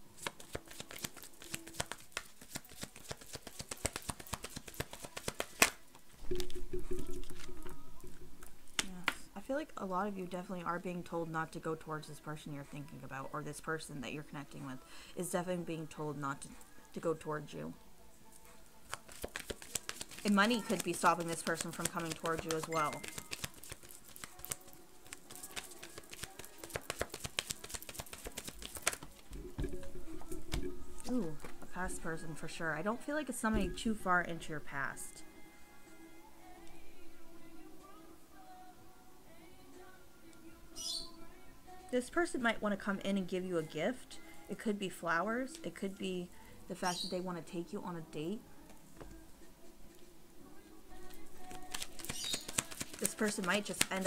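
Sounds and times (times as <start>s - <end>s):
cards being shuffled: 0.1s - 5.8s, 18.9s - 29.4s, 51.1s - 54.0s
sharp card snap: 0.2s - 5.8s.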